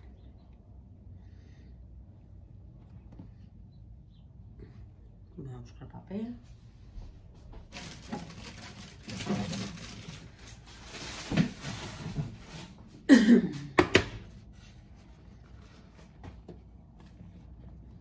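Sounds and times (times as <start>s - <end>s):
kitchen paper rustling: 6.9s - 13.1s, 14.2s - 18.0s.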